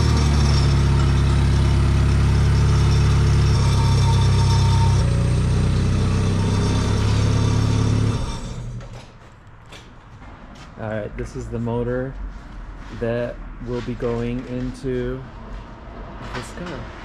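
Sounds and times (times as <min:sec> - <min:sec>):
engine running steadily: 0:00.0 - 0:09.0.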